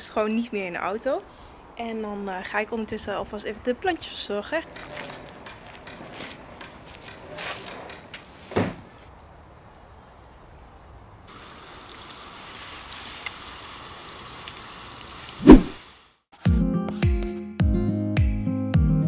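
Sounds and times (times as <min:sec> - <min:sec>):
water spraying from hose: 0:11.3 - 0:16.2
loud thump: 0:15.4 - 0:15.8.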